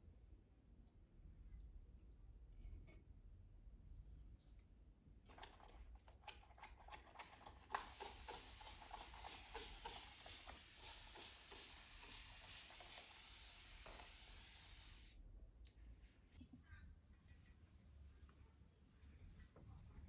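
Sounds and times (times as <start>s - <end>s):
spray bottle clicks: 7.7s - 13.1s
hiss of fine spray: 7.7s - 15.2s.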